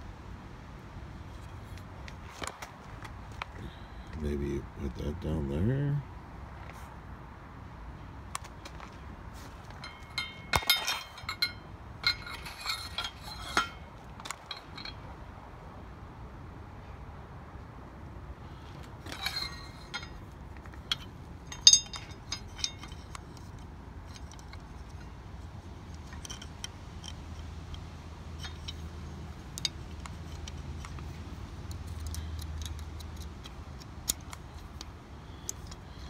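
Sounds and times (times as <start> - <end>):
low steady rumble: 9.1 - 36.0
small metal rattles: 9.6 - 15.1, 18.8 - 36.0
sharp metal clicks: 19.1 - 36.0.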